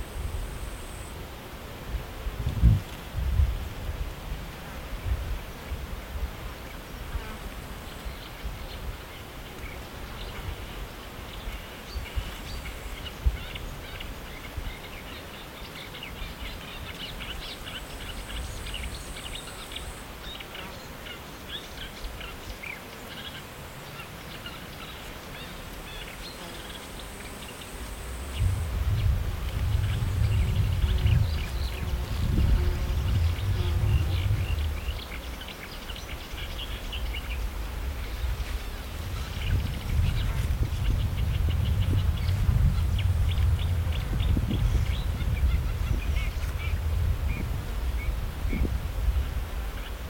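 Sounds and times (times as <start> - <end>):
wind rumbling on microphone: 0.0 - 15.2, 27.0 - 50.0.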